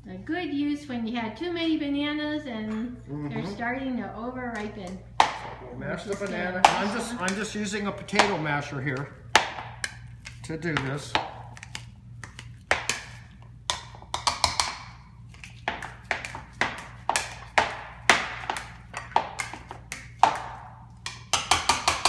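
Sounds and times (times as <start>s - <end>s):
masher knocking bowl: 6.1s - 11.8s, 15.7s - 22.0s.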